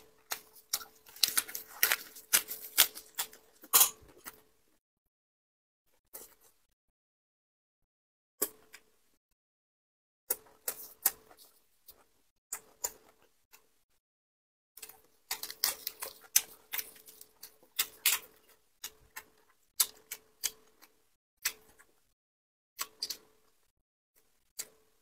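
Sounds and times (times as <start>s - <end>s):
lettuce leaves crackling: 0.1s - 3.7s.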